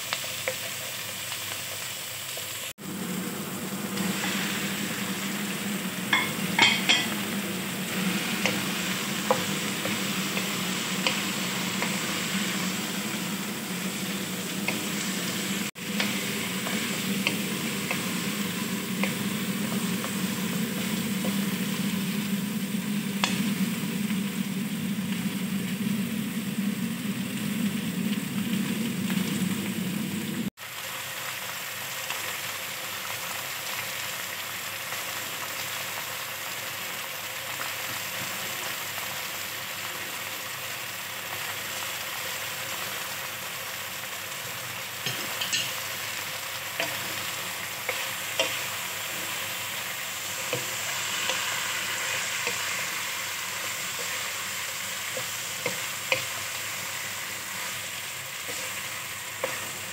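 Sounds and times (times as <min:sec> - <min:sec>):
chicken sizzling in a pan: 0:00.0 - 0:59.9
low hum: 0:02.8 - 0:30.5.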